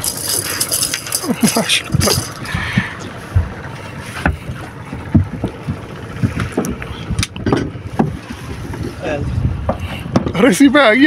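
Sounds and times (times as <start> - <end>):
knocks on wooden boat deck: 4.2 - 6.8
wind on microphone: 4.3 - 10.4.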